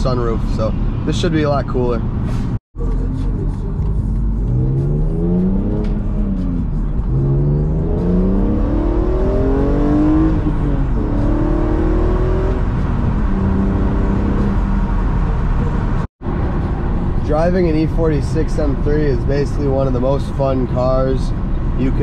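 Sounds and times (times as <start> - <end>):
car engine accelerating through gears: 2.8 - 16.1.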